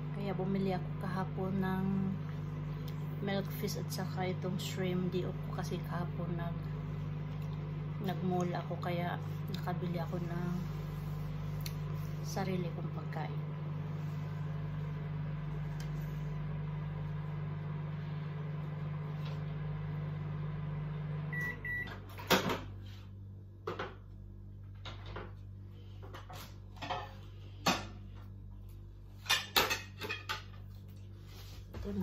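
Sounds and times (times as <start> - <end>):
microwave oven humming: 0.0 - 32.0
short beeps: 21.3 - 21.9.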